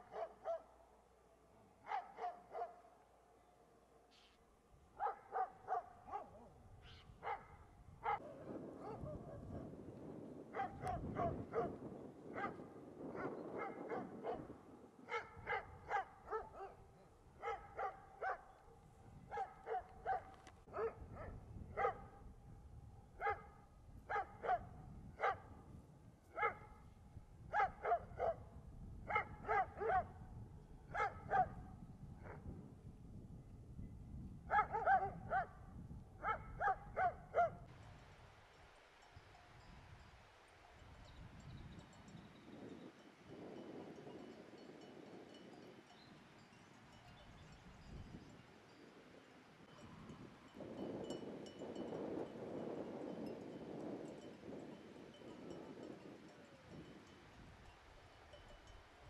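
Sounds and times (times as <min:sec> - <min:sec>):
dogs barking: 0:00.0 - 0:00.7, 0:01.8 - 0:02.9, 0:05.0 - 0:06.5, 0:07.2 - 0:09.5, 0:10.5 - 0:14.5, 0:15.1 - 0:16.8, 0:17.4 - 0:22.1, 0:23.2 - 0:23.5, 0:24.1 - 0:25.5, 0:26.4 - 0:26.7, 0:27.5 - 0:28.4, 0:29.1 - 0:30.2, 0:30.9 - 0:31.6, 0:34.5 - 0:35.6, 0:36.2 - 0:37.6.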